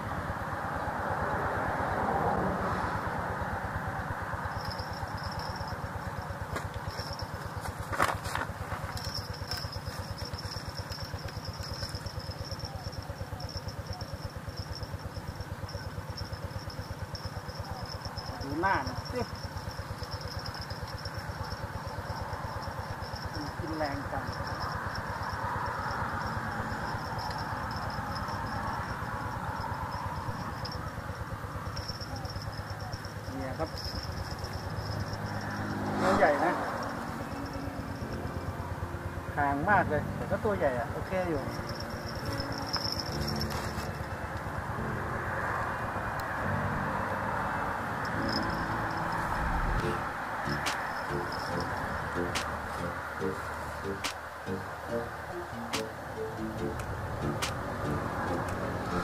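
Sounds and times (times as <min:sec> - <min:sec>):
small engine running: 0:00.0 - 0:59.0
high-pitched insect drone: 0:04.3 - 0:08.1, 0:08.8 - 0:59.0
thin high whine: 0:48.0 - 0:56.1.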